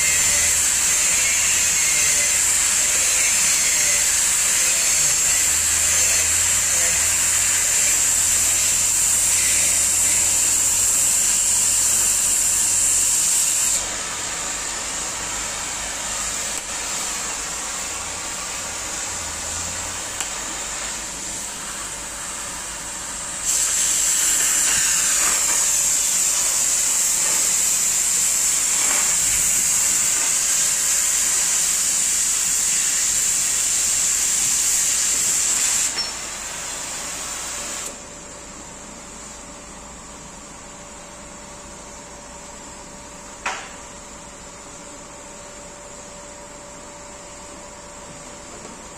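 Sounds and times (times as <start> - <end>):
gas cutting torch hissing: 0.0 - 38.0.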